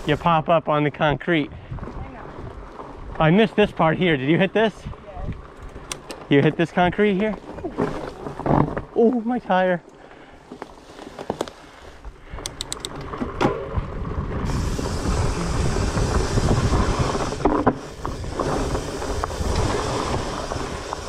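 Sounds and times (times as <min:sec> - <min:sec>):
bike tyres rolling on dirt trail: 0:00.0 - 0:21.0
bike clicks and knocks: 0:05.5 - 0:06.6, 0:12.4 - 0:14.0.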